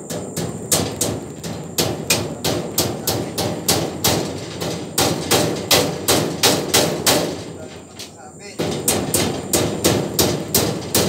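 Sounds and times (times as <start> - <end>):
hammer striking steel frame: 0.0 - 11.0.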